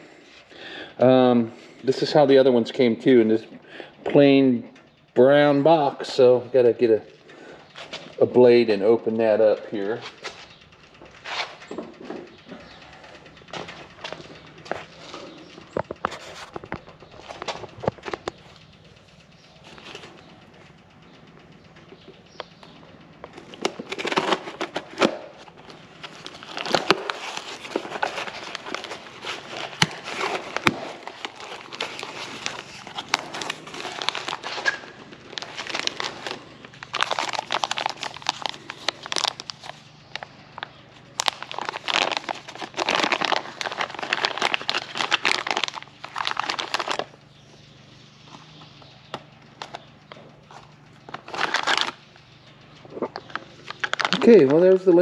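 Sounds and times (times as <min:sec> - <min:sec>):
packaging rustling and crinkling: 0:23.4 - 0:47.2, 0:51.1 - 0:52.0, 0:53.0 - 0:54.5.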